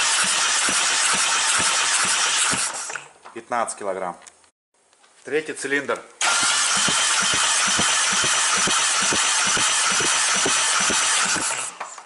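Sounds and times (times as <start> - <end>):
engine cranked by starter: 0.0 - 3.0, 6.2 - 12.0.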